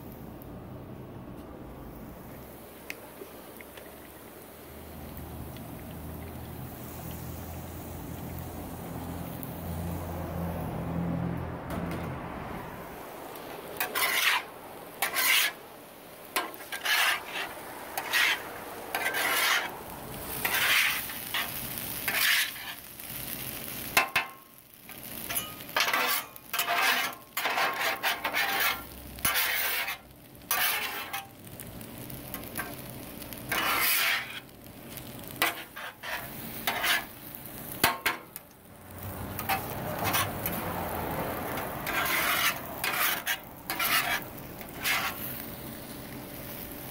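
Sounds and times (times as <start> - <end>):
food sizzling: 2.0 - 11.3, 12.6 - 46.9
spatula scraping griddle: 13.8 - 15.7, 16.3 - 31.4, 32.2 - 38.3, 39.1 - 46.0.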